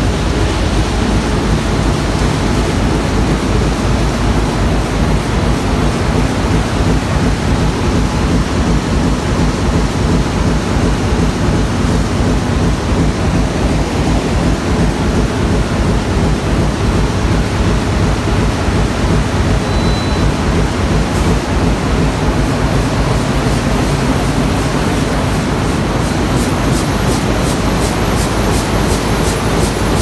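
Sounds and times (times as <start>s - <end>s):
industrial machine din: 0.0s - 30.0s
faint beep: 19.6s - 20.3s.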